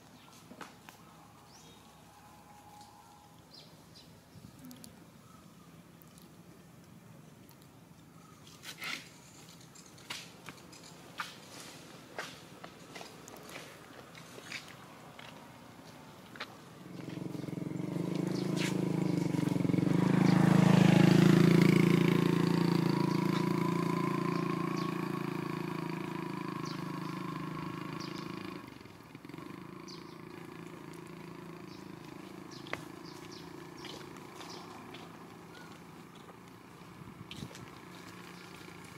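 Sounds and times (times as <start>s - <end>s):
motor vehicle engine passing: 8.5s - 38.9s.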